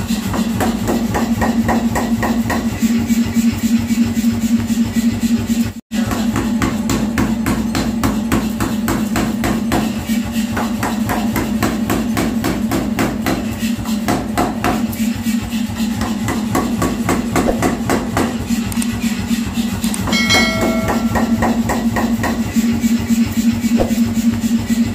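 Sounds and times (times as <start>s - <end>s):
air hammer striking steel: 16.0s - 18.4s, 20.0s - 22.8s, 23.7s - 24.7s.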